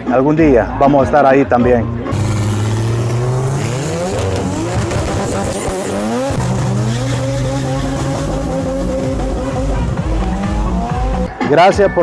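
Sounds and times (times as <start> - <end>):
car engine revving high: 2.1 - 11.3.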